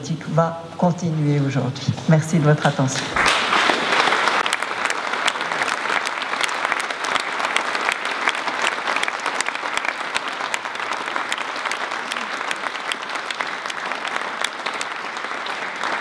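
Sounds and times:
audience applauding: 3.0s - 16.0s.

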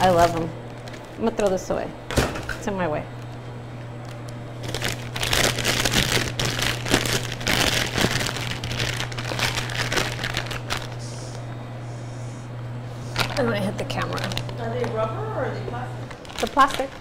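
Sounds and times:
plastic bag crinkling: 0.0s - 1.2s, 4.0s - 11.0s, 13.1s - 17.0s.

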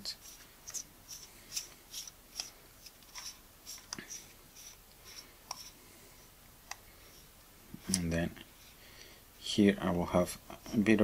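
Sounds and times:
faint scratchy rubs and ticks: 0.0s - 5.8s.

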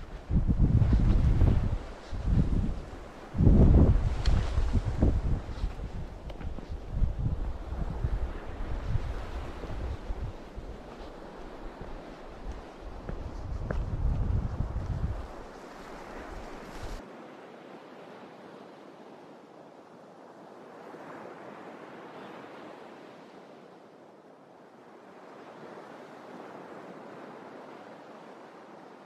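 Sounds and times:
wind buffeting microphone: 0.0s - 17.0s
surf: 0.0s - 24.0s
rushing wind: 0.0s - 29.0s.

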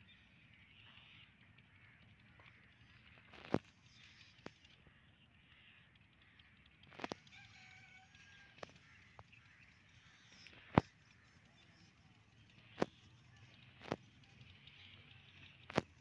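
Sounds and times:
sharp clicks: 6.1s - 7.3s
faint rooster crowing: 6.9s - 9.3s.

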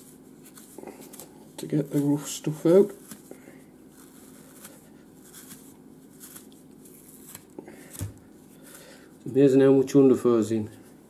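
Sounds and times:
comb scratching through fur: 0.0s - 3.3s, 3.9s - 8.0s.

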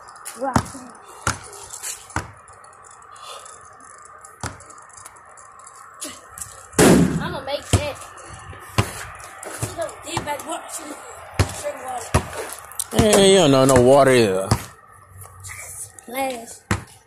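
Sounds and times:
basketball bouncing: 0.3s - 1.5s, 2.1s - 2.4s, 4.4s - 4.7s, 6.8s - 8.0s, 8.7s - 10.6s, 11.3s - 14.8s, 16.6s - 17.0s
ball banging backboard and rim: 0.4s - 1.5s, 2.1s - 2.4s, 4.4s - 4.7s, 6.8s - 8.0s, 8.7s - 10.5s, 11.3s - 14.8s, 16.6s - 17.0s.

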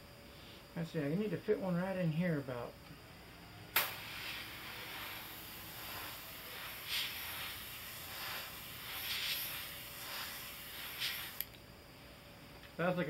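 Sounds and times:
airbrush spraying hiss: 3.6s - 11.6s.

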